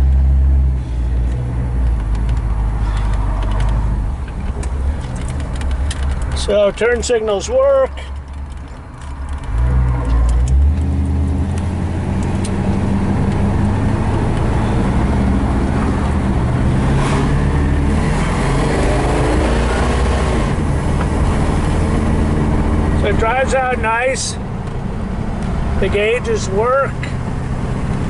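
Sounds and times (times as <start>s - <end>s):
car engine accelerating: 8.2s - 28.0s.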